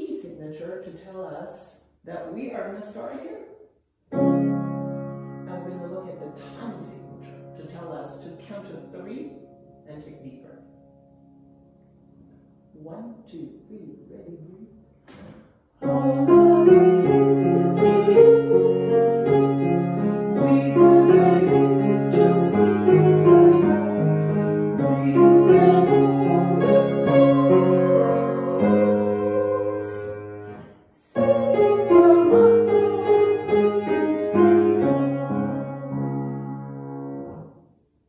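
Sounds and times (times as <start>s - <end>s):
grand piano: 4.1s - 13.0s, 13.9s - 37.8s
woman singing: 15.8s - 19.2s, 20.4s - 22.9s, 24.8s - 30.2s, 31.0s - 34.5s.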